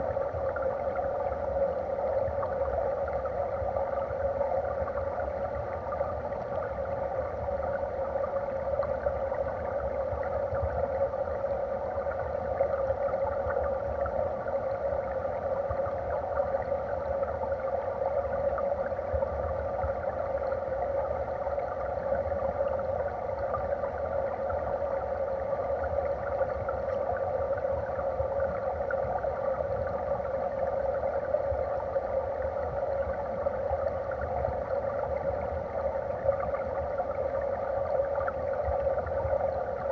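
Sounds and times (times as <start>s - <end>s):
muffled underwater stream rush: 0.0s - 39.9s.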